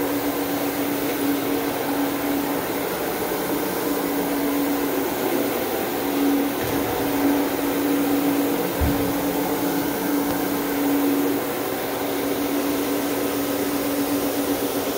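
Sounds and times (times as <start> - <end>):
carpet machine motor hum: 0.0 - 14.9
low bump: 6.5 - 11.3.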